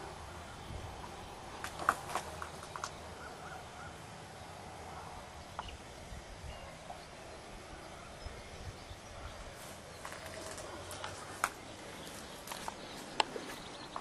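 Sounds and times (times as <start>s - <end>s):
bird chirping: 5.4s - 14.0s.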